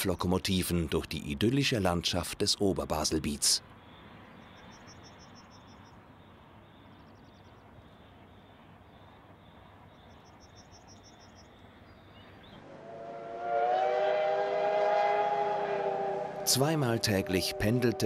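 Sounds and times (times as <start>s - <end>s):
steam locomotive whistle blast: 12.7s - 18.0s.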